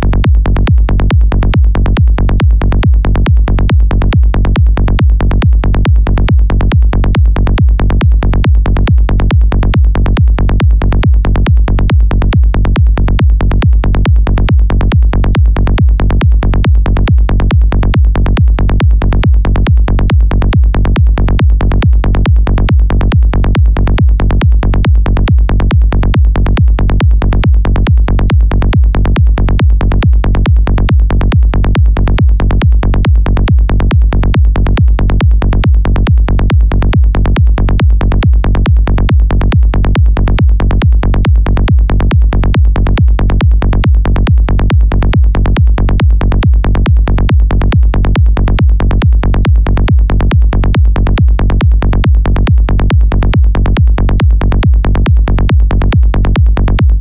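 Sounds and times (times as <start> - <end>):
psytrance kick drum: 0.0 - 57.0
synthesized rolling bass: 0.0 - 57.0.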